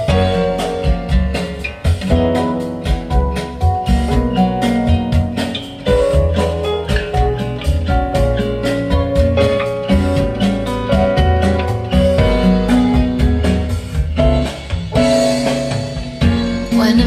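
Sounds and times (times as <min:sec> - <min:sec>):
band music over loudspeakers: 0:00.0 - 0:17.0.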